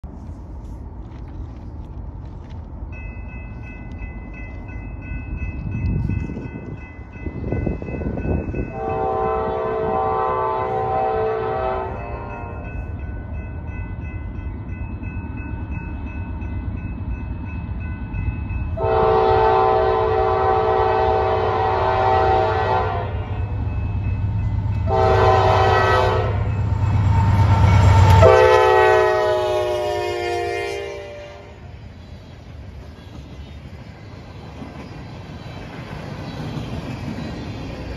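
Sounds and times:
locomotive air horn: 0:08.7 - 0:12.6, 0:18.8 - 0:23.4, 0:24.8 - 0:26.5, 0:27.8 - 0:31.6.

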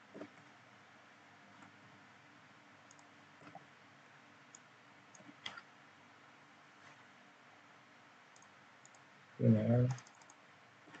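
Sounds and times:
keyboard and mouse clicks: 0:02.9 - 0:03.6, 0:04.5 - 0:05.6, 0:08.3 - 0:09.1, 0:09.8 - 0:11.0.

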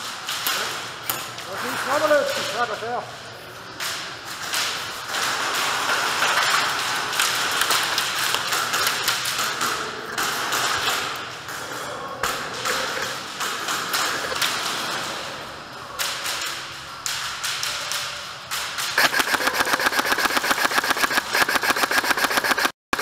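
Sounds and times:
airsoft guns firing: 0:18.8 - 0:23.0.

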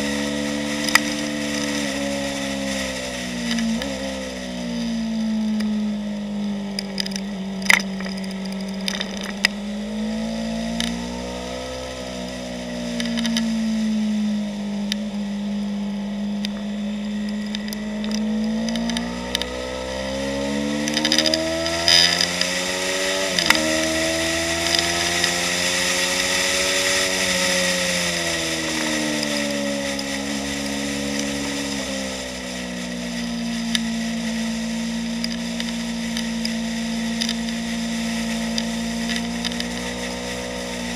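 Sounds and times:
motorcycle engine revving: 0:00.0 - 0:40.9.

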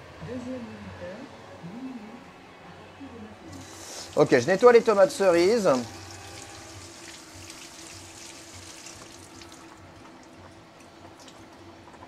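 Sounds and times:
steady low hum: 0:00.0 - 0:12.0
tap water running: 0:03.6 - 0:12.0.

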